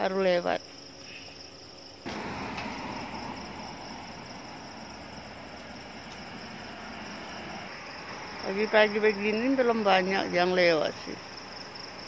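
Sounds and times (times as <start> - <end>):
night insects chirring: 0.0 - 12.0
car driving past: 2.1 - 8.8.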